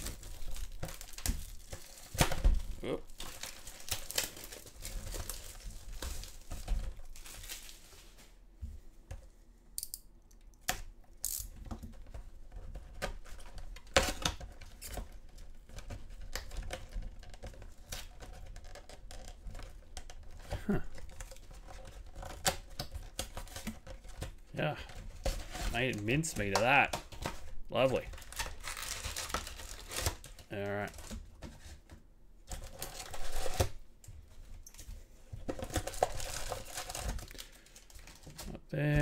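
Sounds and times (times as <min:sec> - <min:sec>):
plastic shrink-wrap crinkling: 0:00.0 - 0:08.4, 0:24.8 - 0:31.2, 0:35.5 - 0:38.6.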